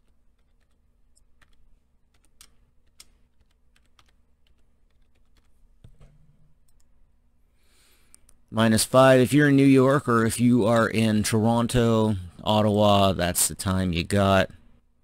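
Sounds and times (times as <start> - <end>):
keystrokes on computer keyboard: 0.0 - 6.0.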